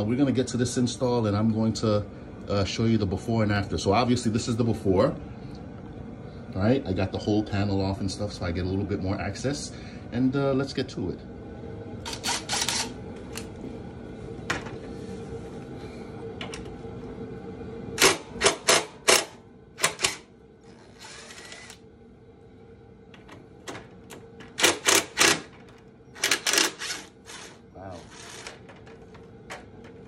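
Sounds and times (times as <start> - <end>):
steady low hum: 0.0 - 30.0
hand ratchet clicking: 26.2 - 27.5.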